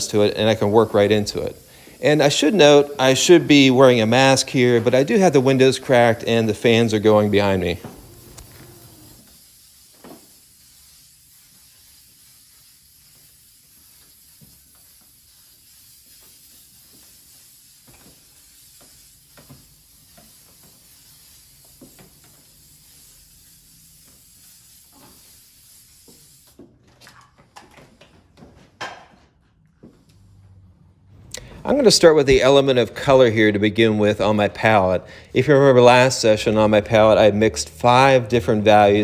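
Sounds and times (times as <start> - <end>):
aerosol spray hissing: 0.0 - 26.6.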